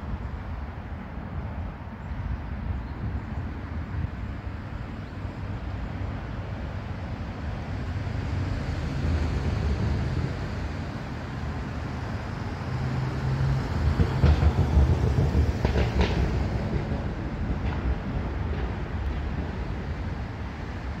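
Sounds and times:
freight train rumbling: 0.0s - 21.0s
sharp clacks of train wheels: 13.5s - 21.0s.

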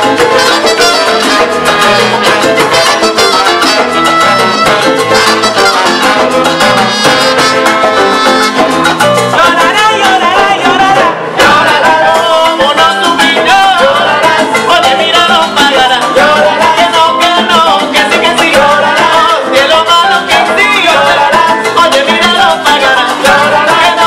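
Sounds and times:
trumpets: 0.0s - 10.2s
congas: 0.0s - 24.0s
salsa band playing: 0.0s - 24.0s.

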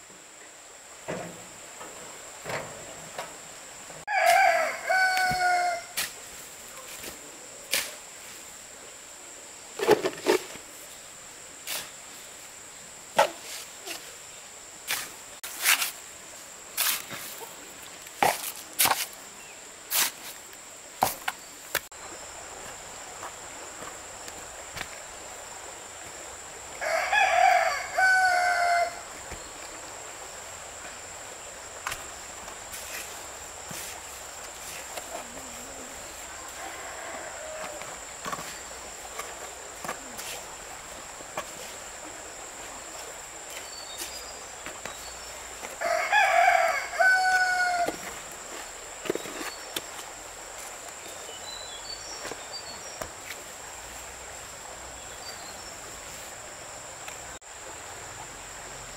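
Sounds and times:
rooster crowing: 4.1s - 6.0s, 26.8s - 29.1s, 36.3s - 38.0s, 45.8s - 48.0s.

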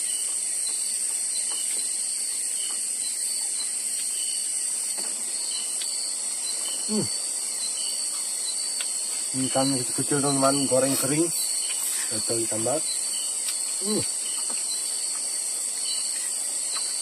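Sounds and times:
insects trilling: 0.0s - 17.0s
faint ticks: 8.8s - 9.0s.

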